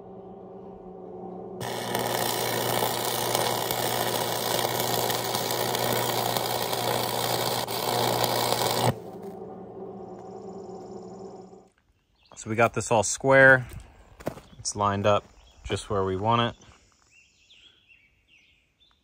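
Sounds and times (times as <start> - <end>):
low steady hum: 0.0 - 11.8
welding arc crackling: 1.6 - 9.2.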